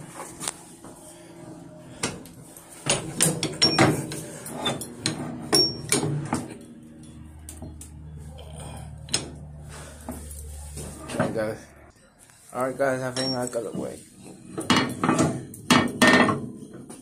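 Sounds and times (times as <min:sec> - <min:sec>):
metal firehole doors clanking: 0:02.8 - 0:06.5.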